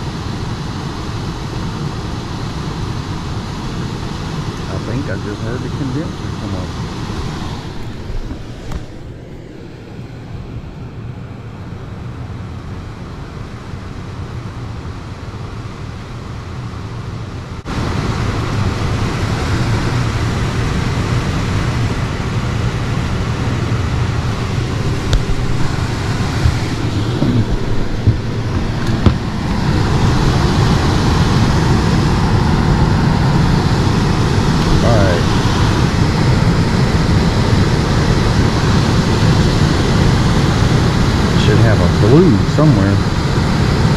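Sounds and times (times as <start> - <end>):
air handler blower rushing: 3.0 - 10.8, 17.7 - 43.9.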